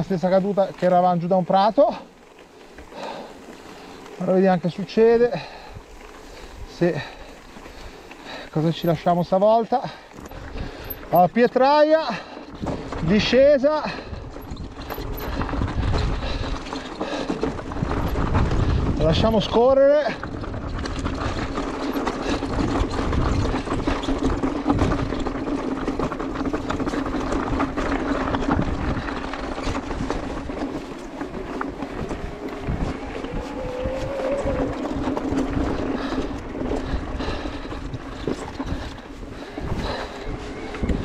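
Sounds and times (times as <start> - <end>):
bike frame rattling: 0.0 - 41.0
tyres crunching over stones: 0.0 - 41.0
steady motor whine: 31.7 - 36.3.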